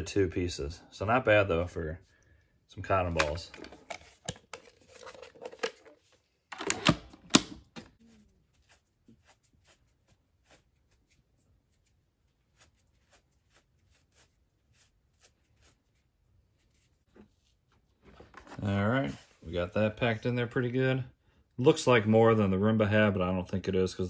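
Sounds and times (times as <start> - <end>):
rustling of cotton balls: 7.9 - 20.1.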